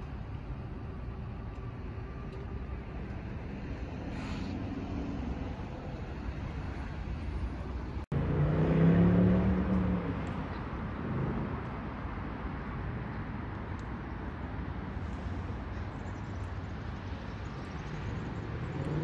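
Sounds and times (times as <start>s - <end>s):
steady road traffic: 0.0s - 19.0s
passing vehicle engine hum: 2.1s - 12.2s, 14.9s - 19.0s.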